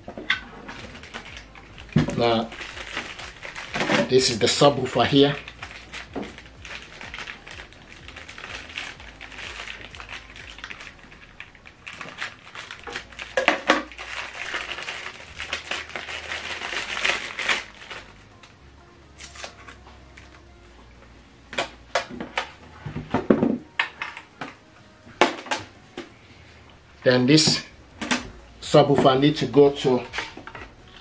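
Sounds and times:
plastic bag crinkling: 0.4 - 18.4.

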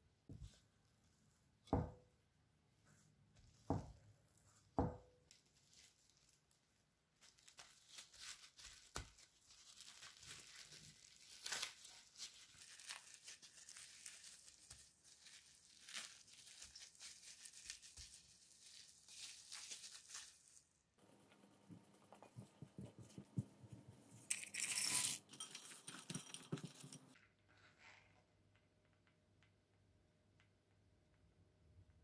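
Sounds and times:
plastic cling wrap crinkling: 5.3 - 20.8.

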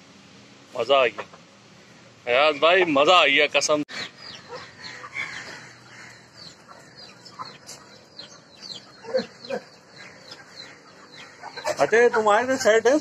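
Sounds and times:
chickens clucking: 1.0 - 13.0
chicks peeping: 2.4 - 13.0.

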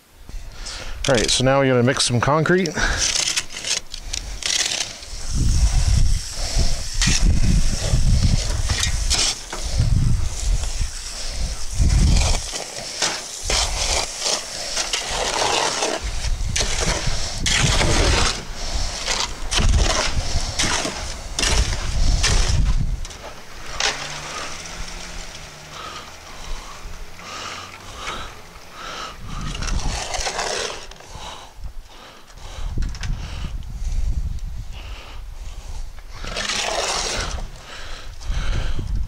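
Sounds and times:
shovel scraping wet concrete: 1.0 - 31.4, 36.1 - 37.6.

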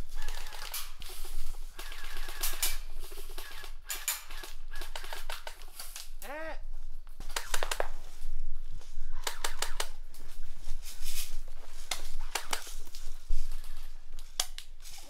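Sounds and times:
airsoft guns snapping: 7.2 - 8.0, 9.2 - 10.0, 11.8 - 12.7, 14.3 - 14.7.

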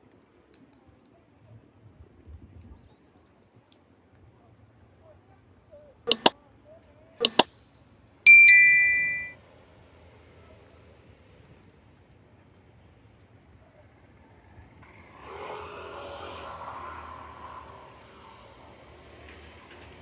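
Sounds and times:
mouse button double clicks: 6.1 - 6.3, 7.2 - 7.5, 8.4 - 9.3
notification bell ding: 6.1 - 6.3, 7.2 - 7.5, 8.3 - 9.4.

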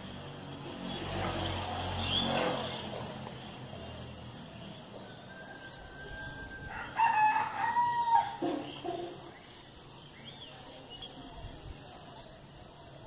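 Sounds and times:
rooster crowing: 5.0 - 8.5.

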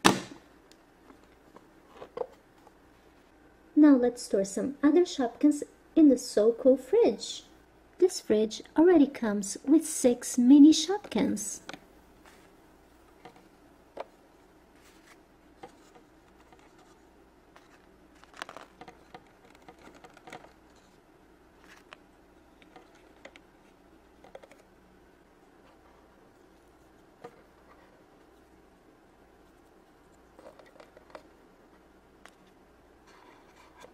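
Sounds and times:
faint room hiss: 0.0 - 33.9.

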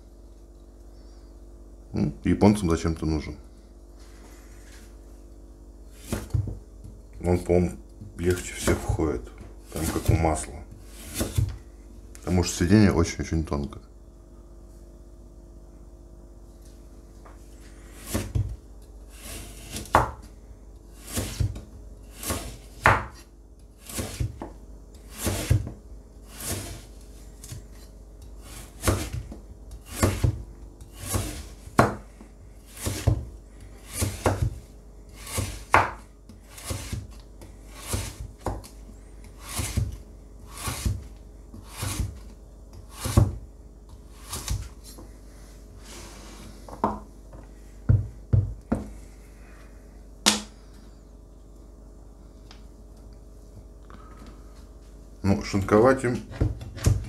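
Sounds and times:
knife slicing carrot: 9.7 - 11.5, 20.9 - 23.2, 23.8 - 24.4, 25.0 - 25.7, 26.3 - 27.8, 28.4 - 32.0, 32.7 - 33.2, 33.8 - 43.4, 44.1 - 44.7.

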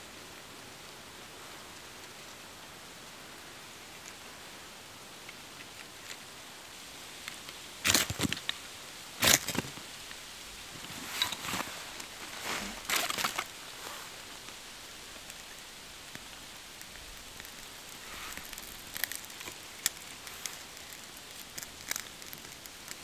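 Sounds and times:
fire crackling and popping: 0.8 - 23.0
bark and tinder rustling: 10.6 - 22.7.

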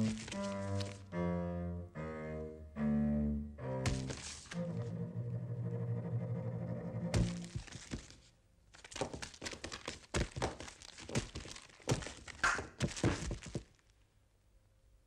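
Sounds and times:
cartoon thumps knocks and scuffs: 3.8 - 4.4, 7.1 - 8.1, 9.0 - 13.7.

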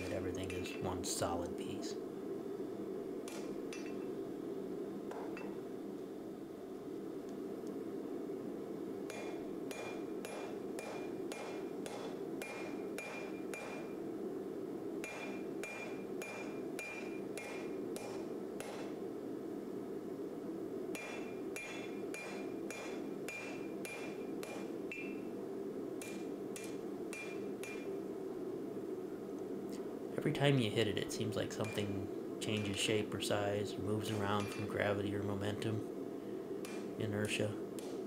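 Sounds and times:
hammer striking blade on anvil: 9.1 - 13.9, 15.0 - 18.9, 21.0 - 25.2, 26.0 - 27.9, 34.1 - 34.7.

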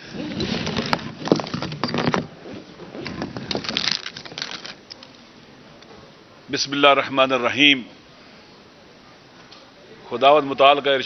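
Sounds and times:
microphones knocking and clicking: 0.2 - 4.7.

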